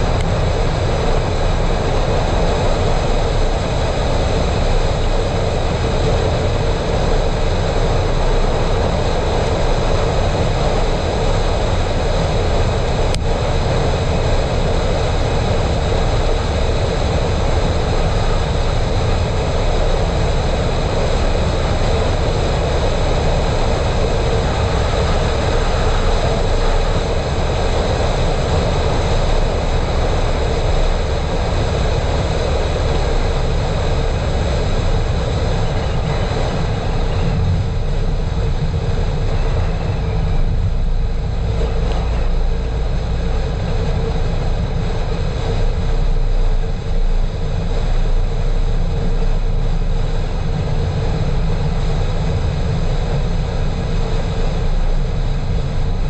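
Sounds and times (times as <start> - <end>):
car tyres rumbling on asphalt: 0.0 - 56.0
wind noise: 0.0 - 56.0.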